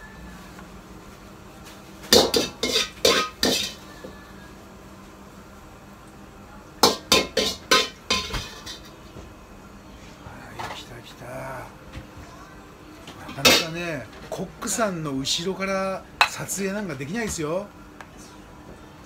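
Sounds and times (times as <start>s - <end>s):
metal spatula clanging on wok: 2.1s - 3.8s, 6.8s - 8.9s.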